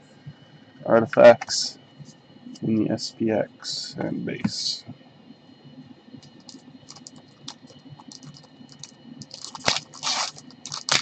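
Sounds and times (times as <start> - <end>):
cards scratching and clicking: 6.2 - 11.0
wrapper crinkling: 6.4 - 11.0.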